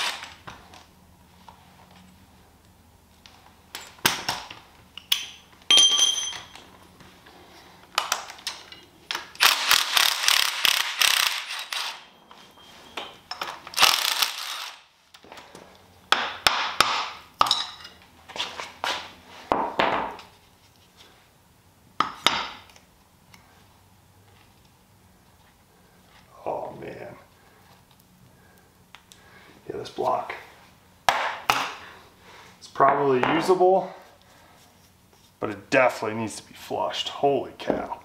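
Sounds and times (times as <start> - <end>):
metal parts and tools clanking: 5.0 - 6.7, 8.1 - 14.8.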